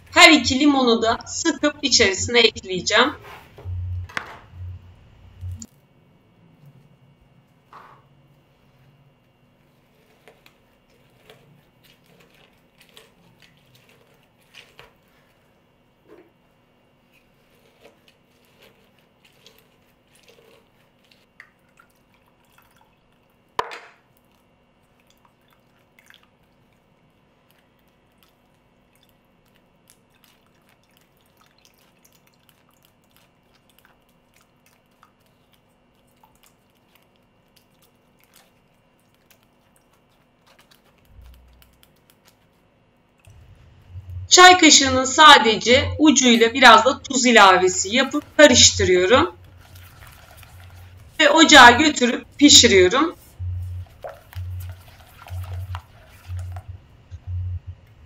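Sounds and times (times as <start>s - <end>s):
spatula scraping: 2.9s - 3.7s, 9.7s - 15.4s, 17.1s - 21.3s, 45.7s - 56.7s
juice dripping through strainer: 3.2s - 44.5s, 46.0s - 58.0s
citrus reamer squishing and clicking: 9.9s - 15.4s, 17.1s - 44.2s.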